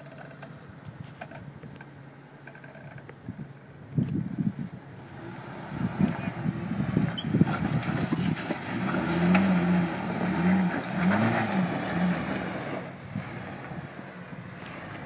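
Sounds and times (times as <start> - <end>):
rough scraping and knocking: 0.0 - 3.2, 7.0 - 12.8.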